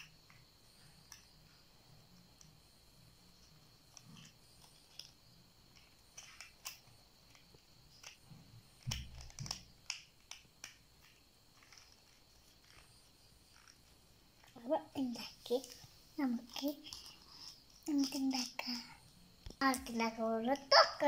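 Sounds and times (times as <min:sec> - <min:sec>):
plastic toy bricks clicking: 0:03.9 - 0:08.2, 0:08.8 - 0:12.8.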